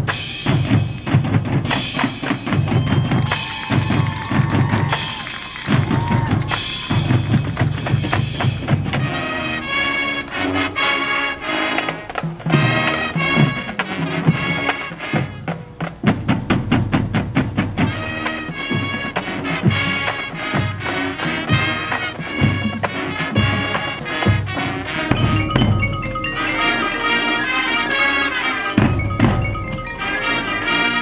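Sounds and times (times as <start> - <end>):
drums: 0.0 - 31.0
brass chords: 6.5 - 16.2, 17.6 - 31.0.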